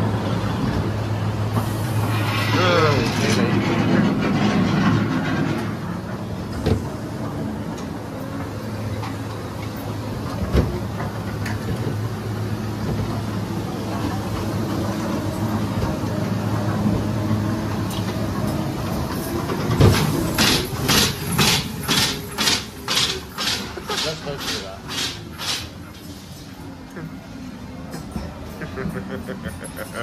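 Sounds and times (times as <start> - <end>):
ride car rumbling on track: 0.0 - 30.0
sharp clacks: 20.0 - 25.8.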